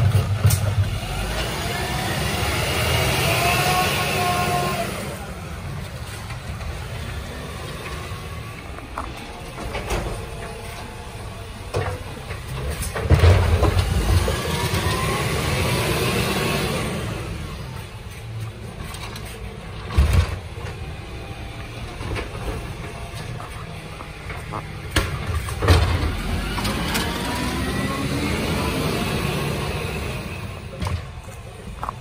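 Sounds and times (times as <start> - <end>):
garbage truck diesel engine revving: 0.0 - 32.0
hydraulic arm whine: 19.9 - 31.2.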